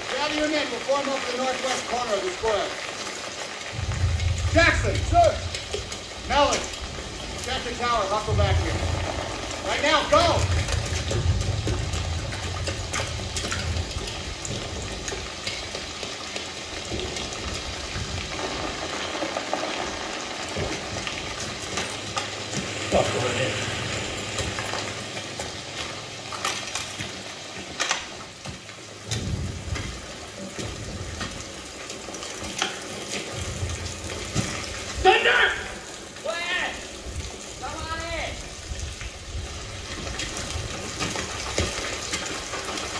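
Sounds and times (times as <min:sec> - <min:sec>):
rain hissing: 0:00.0 - 0:42.9
deep low rumbles: 0:03.7 - 0:15.4.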